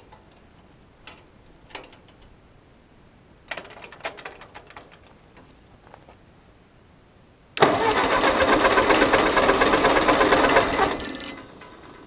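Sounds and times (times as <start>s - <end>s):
clicks and clatter of tractor controls: 0.0s - 2.3s, 3.5s - 5.5s, 7.6s - 12.0s.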